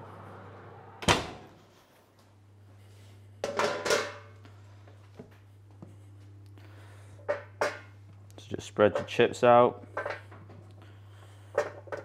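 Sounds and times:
oven door shutting with a bang: 1.0s - 1.6s.

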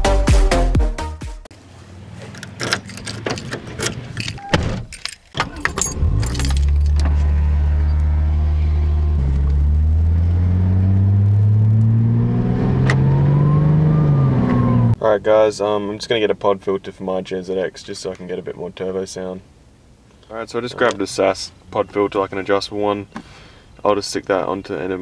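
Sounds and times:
car engine starting and idling: 1.6s - 15.0s
keys jangling: 2.4s - 7.0s.

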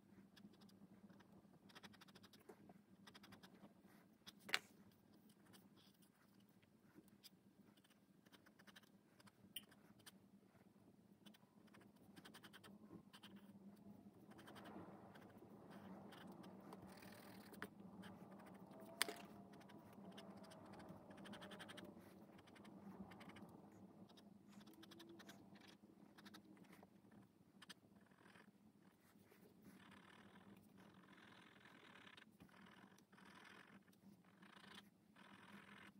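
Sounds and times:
pencil scratching on paper: 0.3s - 27.0s.

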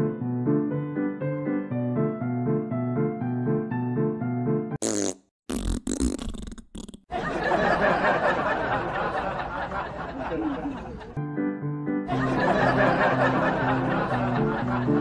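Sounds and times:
wet fart sound effect: 4.8s - 7.1s.

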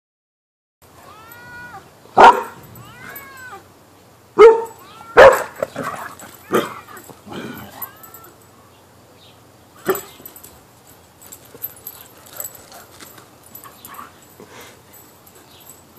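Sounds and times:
dog whining: 1.0s - 3.6s, 4.5s - 8.4s
dog barking: 2.2s - 2.6s, 4.4s - 6.8s.

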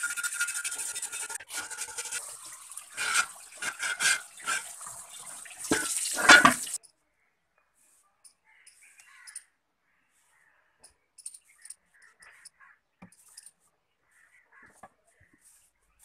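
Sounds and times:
stiff brush scrubbing metal: 0.0s - 5.0s, 5.6s - 6.8s
tap water splashing: 1.5s - 6.8s.

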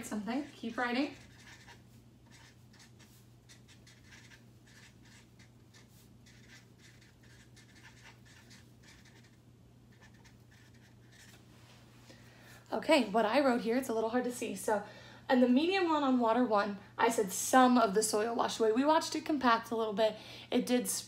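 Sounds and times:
steady low hum: 0.0s - 18.0s
marker squeaking on paper: 0.2s - 11.4s.

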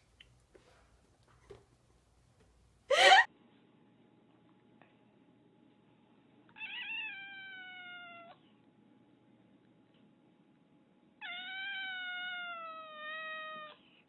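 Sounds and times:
cat meowing: 6.6s - 8.4s, 11.2s - 13.8s.

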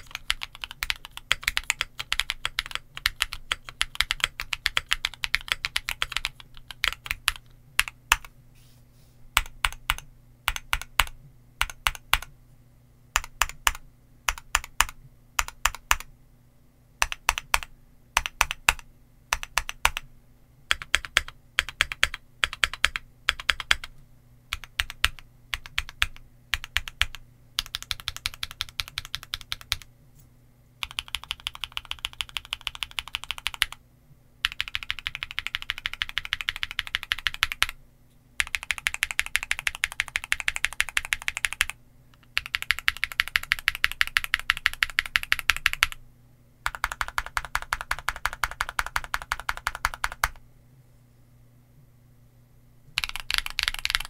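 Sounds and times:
mechanical keyboard typing: 0.0s - 8.3s, 9.4s - 12.3s, 13.2s - 16.1s, 17.0s - 20.1s, 20.7s - 29.9s, 30.8s - 33.8s, 34.4s - 37.8s, 38.4s - 46.0s, 46.6s - 50.4s, 53.0s - 54.0s.

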